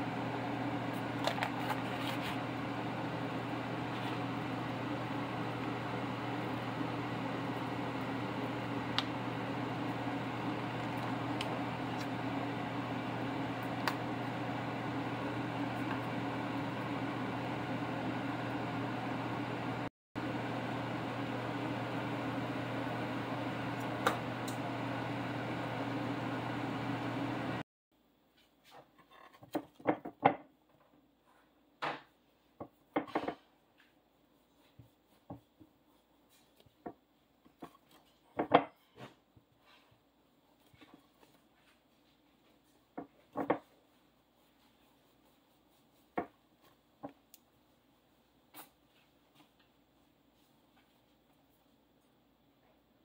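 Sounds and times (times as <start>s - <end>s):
kitchen fan humming: 0.0s - 27.6s
bread rubbing: 1.0s - 10.8s, 43.6s - 49.2s.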